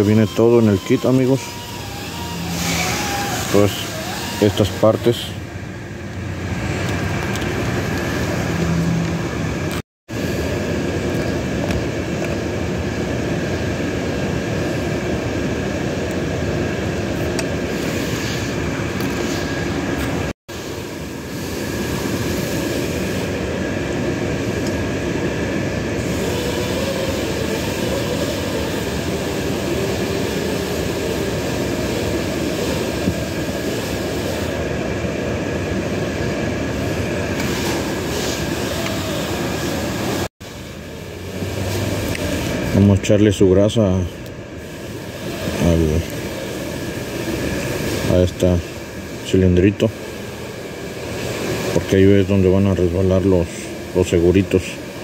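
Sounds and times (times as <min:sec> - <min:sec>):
loud machine noise: 0:00.0 - 0:55.0.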